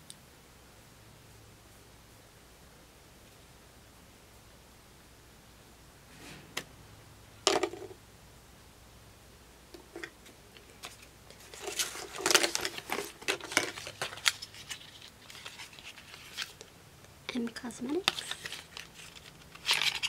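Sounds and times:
rustling: 0:09.8 - 0:20.0.

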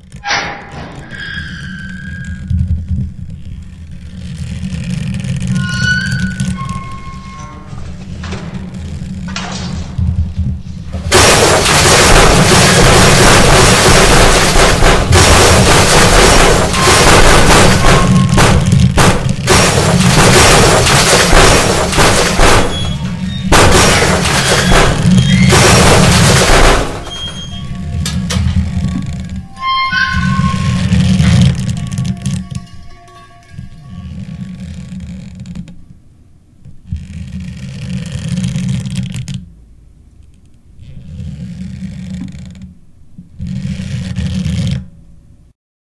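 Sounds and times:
metal tearing: 0:00.0 - 0:10.1, 0:10.8 - 0:35.7
deep rumble: 0:00.0 - 0:35.4
ship hull scraping ice: 0:01.0 - 0:35.5
ice shattering: 0:11.1 - 0:28.2.

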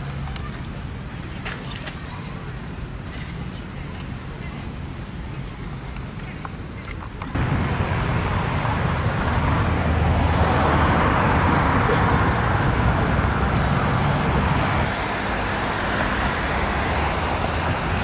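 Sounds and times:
city road traffic: 0:00.0 - 0:18.0
vehicle passing: 0:07.4 - 0:18.0.

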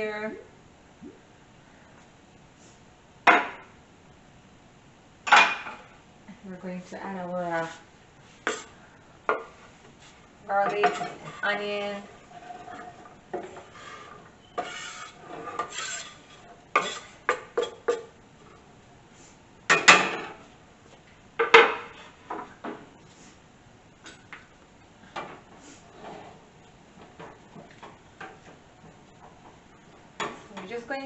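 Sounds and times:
knife scraping on wooden board: 0:08.4 - 0:08.8, 0:13.7 - 0:18.1.

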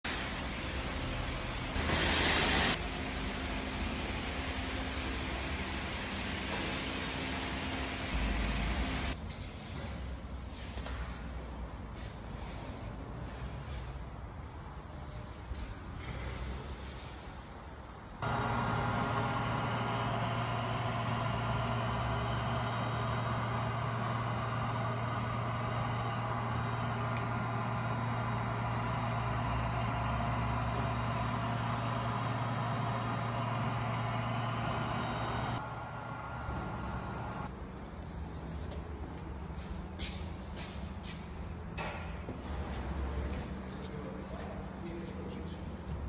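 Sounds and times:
car engine idling: 0:18.2 - 0:37.5.

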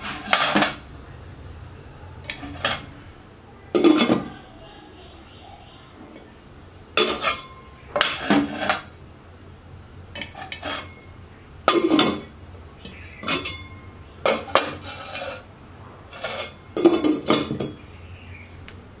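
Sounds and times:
metal lid clanking on pot: 0:00.0 - 0:00.8, 0:02.3 - 0:02.9, 0:03.8 - 0:04.3, 0:07.0 - 0:08.9, 0:11.7 - 0:12.3, 0:13.2 - 0:15.5, 0:16.1 - 0:17.8.

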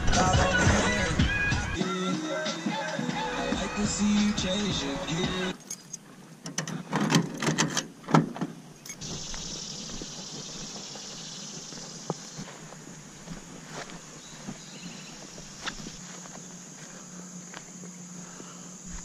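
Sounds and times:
insects chirring: 0:08.5 - 0:19.0
footsteps on grass: 0:09.0 - 0:19.0.

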